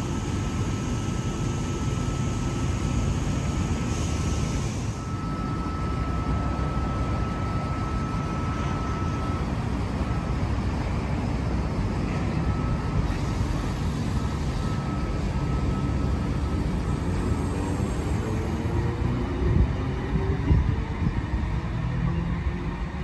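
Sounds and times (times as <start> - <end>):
faint high steady tone: 4.8 - 18.6.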